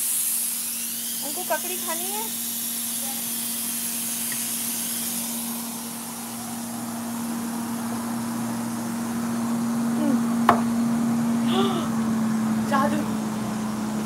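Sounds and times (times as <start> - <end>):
low hum: 4.7 - 14.0.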